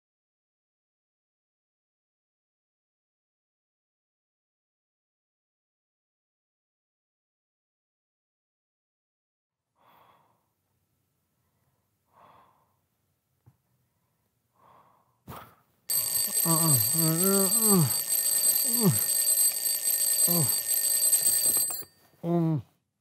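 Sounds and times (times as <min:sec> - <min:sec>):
soft breathing: 0:11.3 - 0:12.9, 0:13.8 - 0:19.8
alarm clock ringing: 0:15.9 - 0:22.0
man groaning: 0:16.4 - 0:18.0.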